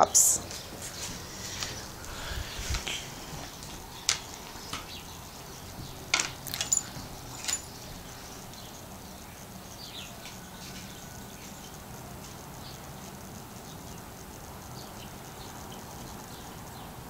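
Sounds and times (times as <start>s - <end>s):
dog collar tags clinking: 6.1s - 8.4s.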